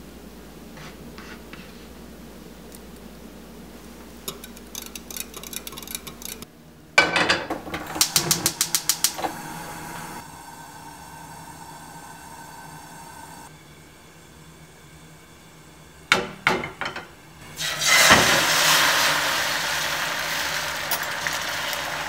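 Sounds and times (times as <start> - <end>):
whisk clicking against glass: 4.3 - 6.4
gas burner hissing: 7.6 - 22.0.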